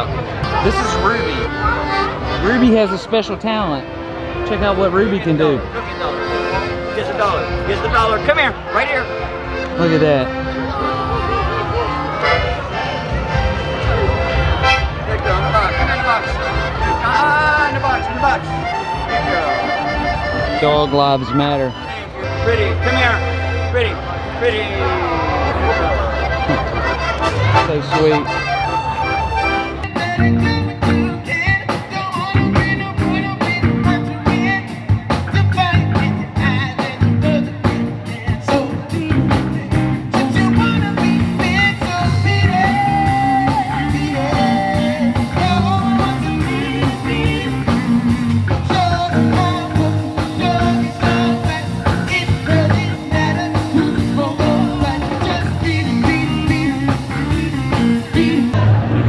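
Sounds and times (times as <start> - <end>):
live band playing: 0.0 - 59.0
person singing: 29.9 - 58.7.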